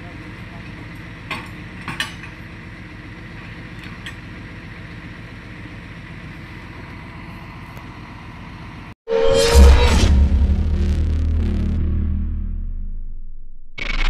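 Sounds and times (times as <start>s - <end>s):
truck engine idling: 0.0s - 8.9s.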